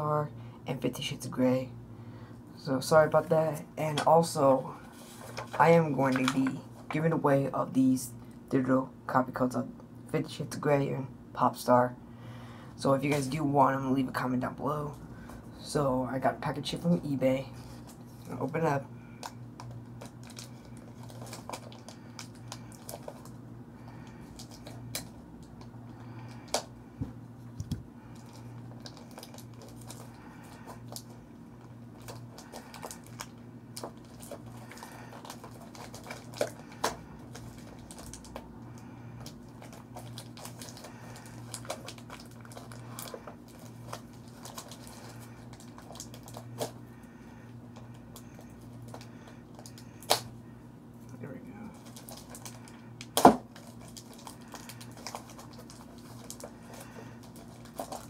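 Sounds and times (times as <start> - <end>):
faint low hum: 0.0 - 58.0
paper and plastic packaging crinkling: 3.9 - 7.1, 17.4 - 26.7, 27.6 - 47.1, 47.7 - 50.4, 51.7 - 58.0.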